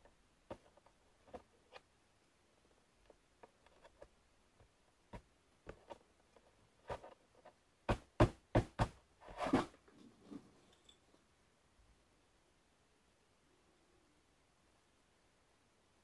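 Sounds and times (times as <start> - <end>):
rubbing scuff: 8.8 - 9.7.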